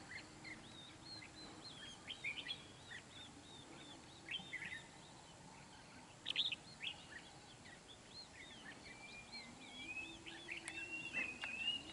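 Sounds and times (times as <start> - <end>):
bird chirping: 0.0 - 11.9
bird whistled notes: 8.4 - 11.9.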